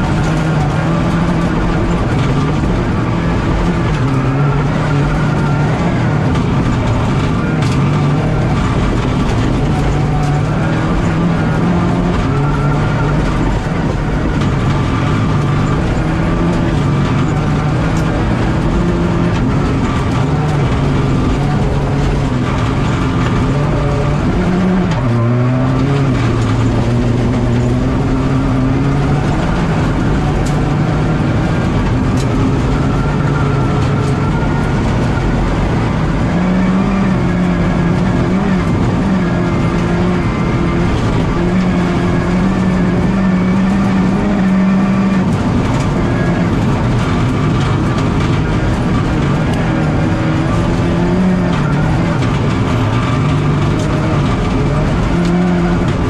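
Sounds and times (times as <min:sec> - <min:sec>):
rally car engine revving: 0:00.0 - 0:56.0
road and tyre noise: 0:00.0 - 0:56.0.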